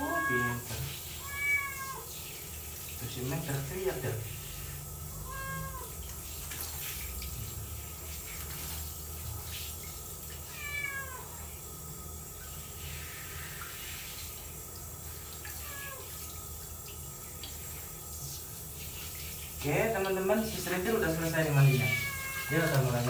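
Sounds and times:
cat meowing: 0:00.0 - 0:02.1, 0:05.1 - 0:06.0, 0:10.5 - 0:11.5, 0:15.6 - 0:16.1, 0:21.4 - 0:23.0
shower hiss: 0:00.0 - 0:23.0.

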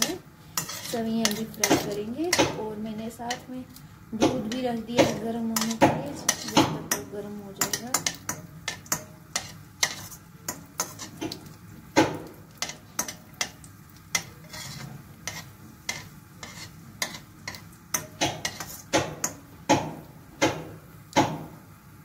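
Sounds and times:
faint frying sizzle: 0:00.0 - 0:22.0
spoon clinking against pan: 0:04.2 - 0:11.0.

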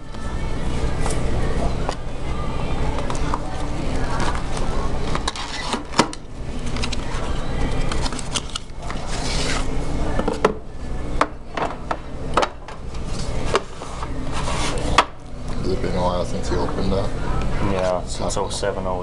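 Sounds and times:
box surfaces sliding: 0:13.1 - 0:15.0.

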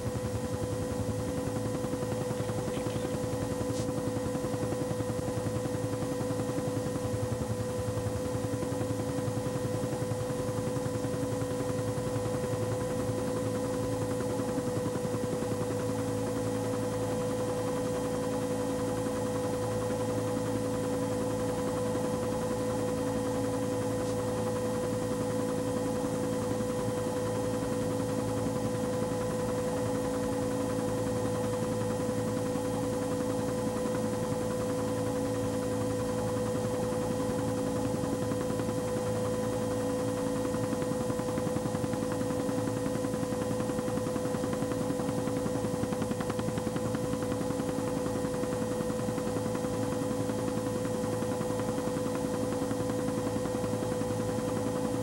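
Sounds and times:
aircraft cabin drone: 0:01.7 - 0:04.4.

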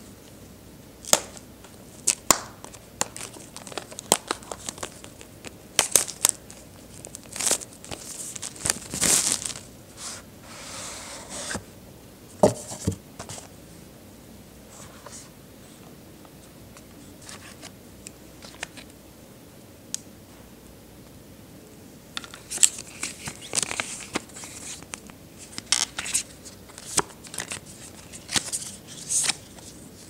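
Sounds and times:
plastic wrap crinkling: 0:02.0 - 0:09.7.

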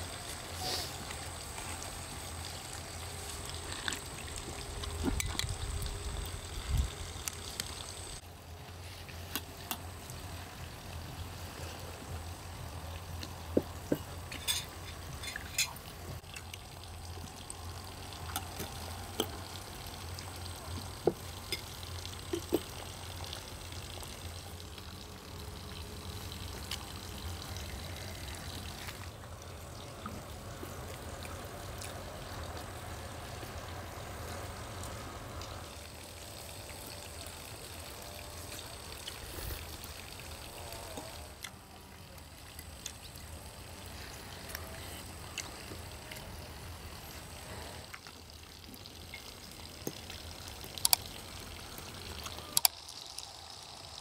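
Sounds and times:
background hiss: 0:00.0 - 0:16.2.

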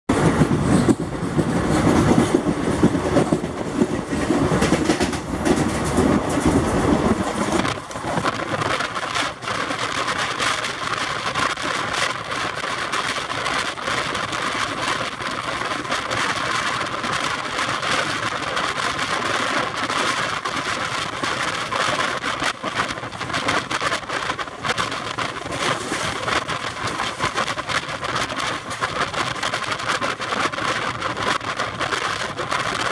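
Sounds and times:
wind rushing: 0:00.1 - 0:09.9
train running at speed: 0:00.1 - 0:32.9
wheels clicking on rails: 0:00.1 - 0:32.9.

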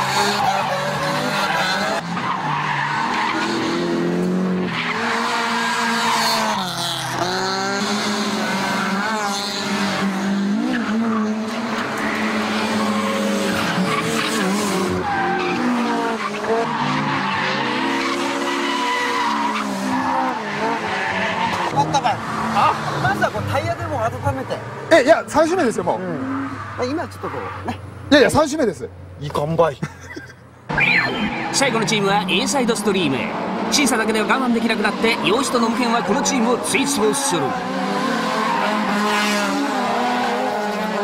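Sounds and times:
car engines revving: 0:00.0 - 0:41.0
tyres squealing: 0:10.6 - 0:24.0, 0:33.8 - 0:41.0.

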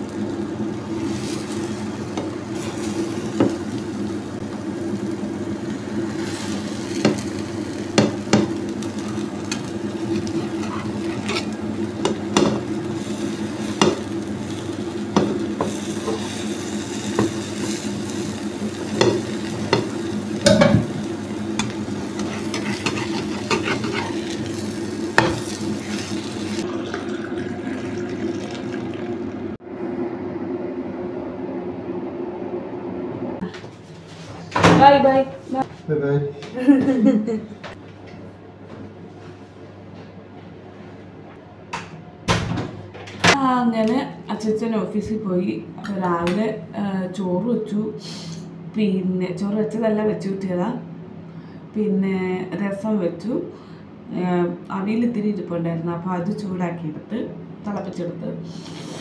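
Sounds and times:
omelette sizzling: 0:00.0 - 0:29.6
metal spatula scraping a pan: 0:10.4 - 0:11.6, 0:21.6 - 0:24.5.

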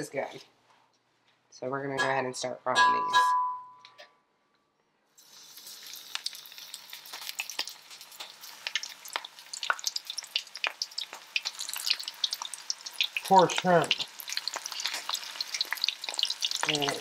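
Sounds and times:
shrimp frying in oil: 0:05.2 - 0:17.0.

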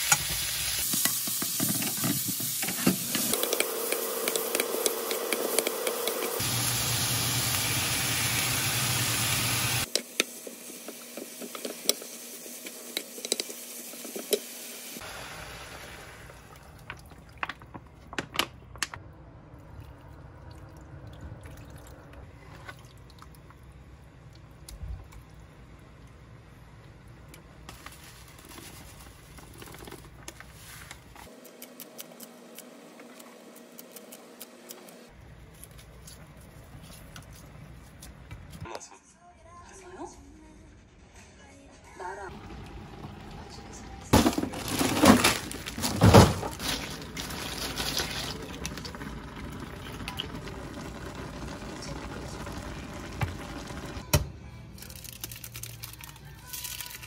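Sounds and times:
food sizzling in a wok: 0:00.0 - 0:16.4
stew simmering: 0:42.3 - 0:54.0
broth pouring into a pan: 0:46.6 - 0:54.0.

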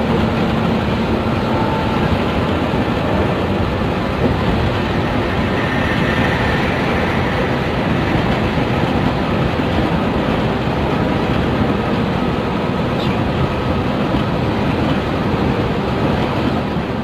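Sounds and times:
coach engine and road noise: 0:00.0 - 0:17.0.

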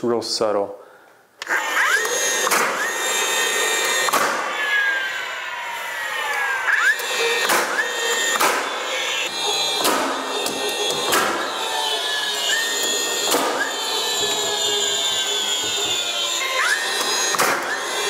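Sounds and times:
power tool motor whining: 0:01.4 - 0:18.0
nail gun shots: 0:02.4 - 0:02.8, 0:04.1 - 0:04.5, 0:07.4 - 0:08.7, 0:09.8 - 0:11.4, 0:13.3 - 0:13.6, 0:17.3 - 0:17.8.

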